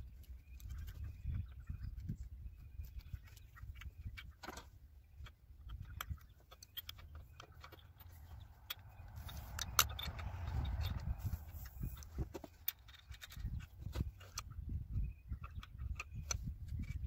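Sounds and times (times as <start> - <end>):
metallic clicks of wrench and fittings: 3.3 - 14.5
low rumble: 7.8 - 15.5.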